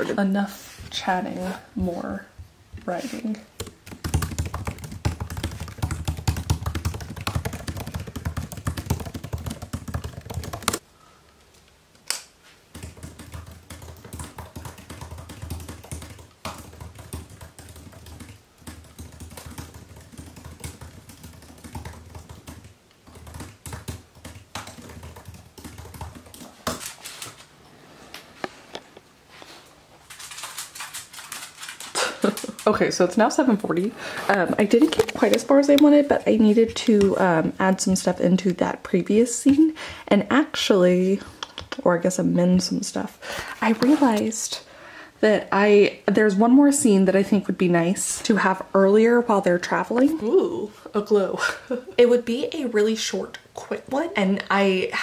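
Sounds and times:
fast typing on laptop keyboard: 3.6s - 10.8s, 12.7s - 27.4s, 30.1s - 33.5s, 34.6s - 38.2s.

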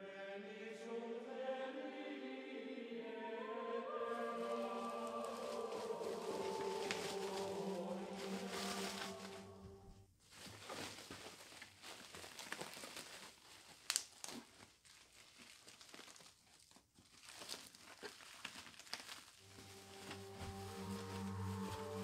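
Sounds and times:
plastic wrap crinkling and tearing: 4.4s - 9.5s, 10.2s - 22.0s
sharp plastic crack: 13.8s - 14.6s.

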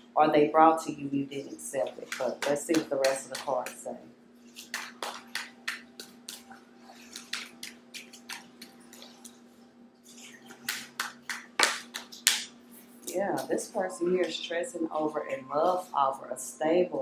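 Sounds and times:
cards being shuffled: 4.4s - 9.4s.

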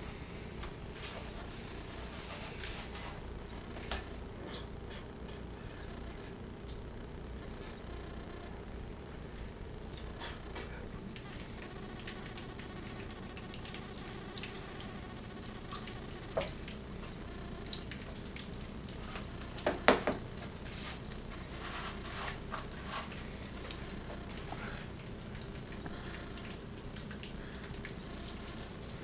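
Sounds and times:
chicken sizzling in oil: 9.4s - 29.0s
oil popping: 9.9s - 29.0s.

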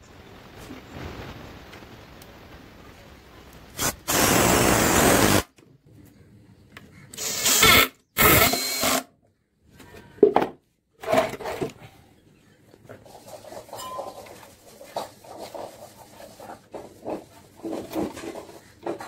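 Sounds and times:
power drill driving screws: 3.8s - 5.5s, 7.2s - 9.1s.

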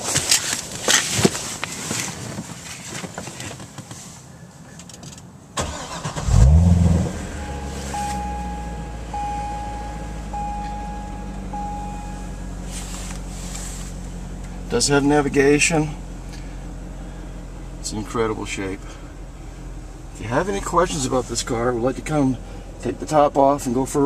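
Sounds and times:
car engine starting and idling: 0.2s - 24.0s
dashboard chime: 7.2s - 12.5s.

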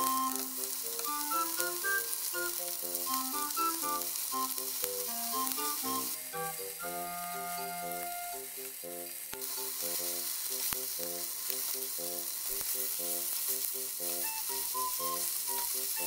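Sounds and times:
chicken sizzling in a frying pan: 0.0s - 16.0s.

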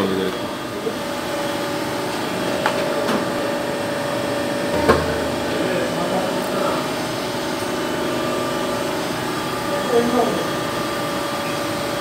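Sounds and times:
pump motor humming: 0.0s - 12.0s
sharp knock: 4.7s - 5.4s.

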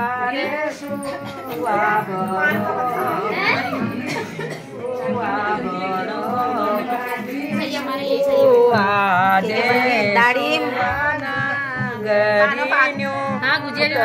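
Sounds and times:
women singing: 0.0s - 14.0s.

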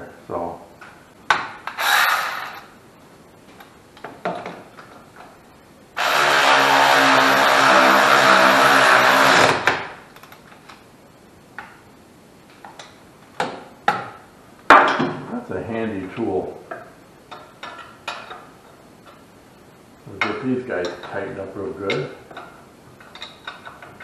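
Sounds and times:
hand power tool running: 1.8s - 2.6s, 6.0s - 9.7s.

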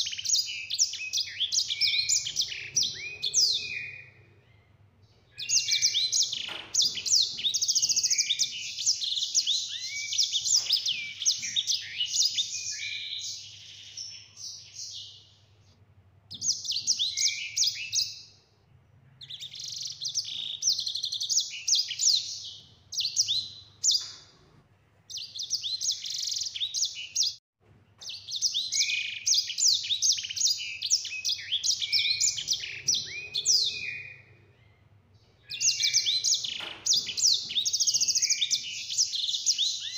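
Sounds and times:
finch singing warbled trills: 0.0s - 4.4s, 5.4s - 15.0s, 28.1s - 34.6s, 35.5s - 39.9s.

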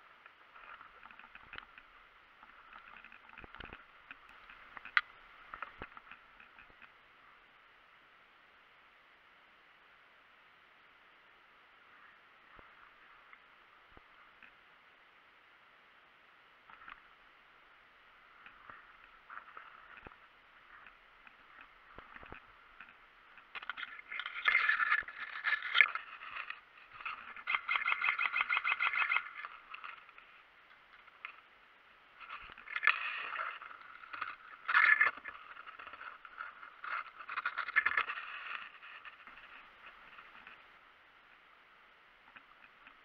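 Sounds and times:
dry grass rustling and scraping: 18.3s - 31.5s, 32.1s - 40.8s.

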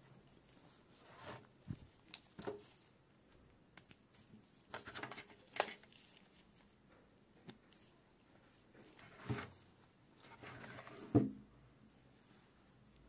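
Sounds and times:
plastic strip clicks and rustles: 4.7s - 5.9s.

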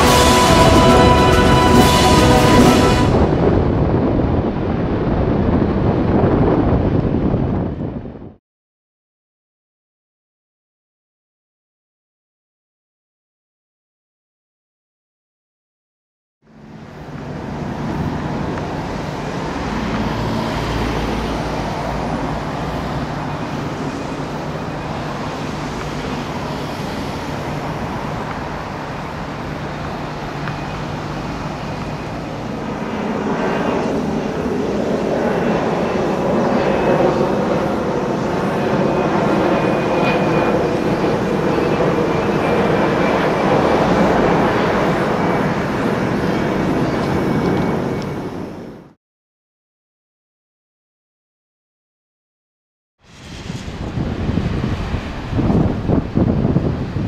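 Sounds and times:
jet engines rumbling overhead: 0.0s - 8.4s, 16.5s - 49.0s, 53.0s - 57.0s
faint high whine: 16.5s - 48.9s.

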